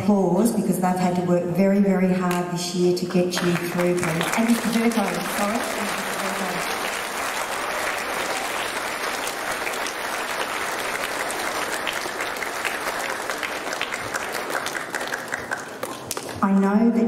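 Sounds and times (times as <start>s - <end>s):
audience applauding: 3.4s - 16.4s.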